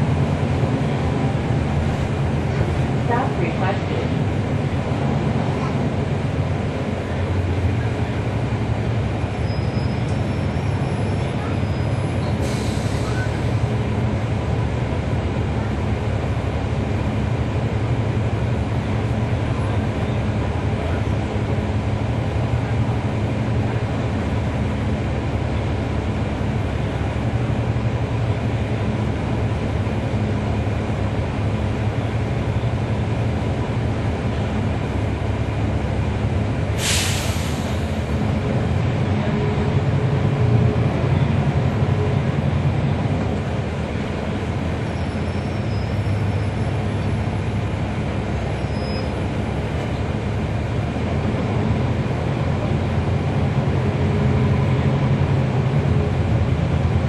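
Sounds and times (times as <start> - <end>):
bus diesel engine running: 0.0 - 57.0
sharp hiss of air: 36.8 - 38.0.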